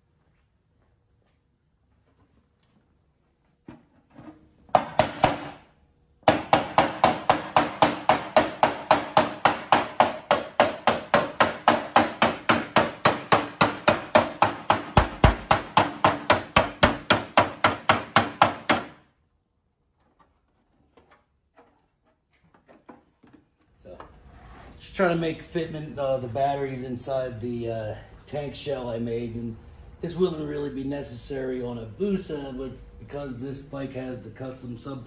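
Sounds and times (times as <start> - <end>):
hammer beating on metal: 6.2 - 19.0.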